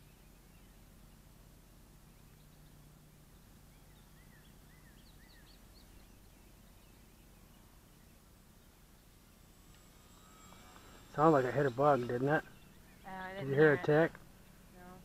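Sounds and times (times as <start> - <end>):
faint outdoor hiss: 0.0 - 15.0
faint high bird chirps: 2.0 - 9.2.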